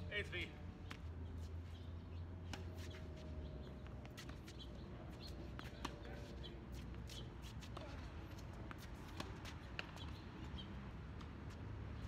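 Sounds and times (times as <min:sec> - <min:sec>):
faint birds chirping: 0:00.8 - 0:07.4.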